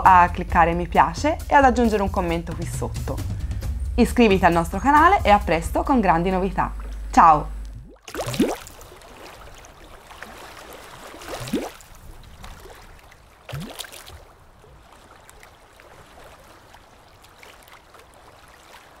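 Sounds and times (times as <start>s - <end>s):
water gurgling: 6.6s - 19.0s
bubbling gulps: 6.7s - 12.8s, 13.5s - 14.2s.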